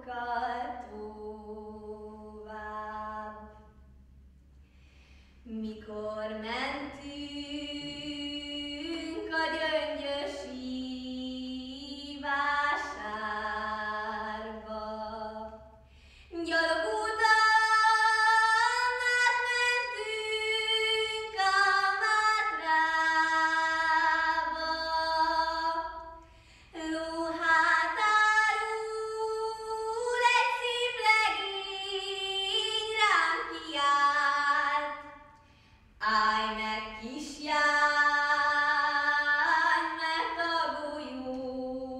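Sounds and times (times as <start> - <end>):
girl singing unaccompanied: 16.4 - 26.1, 26.8 - 35.1.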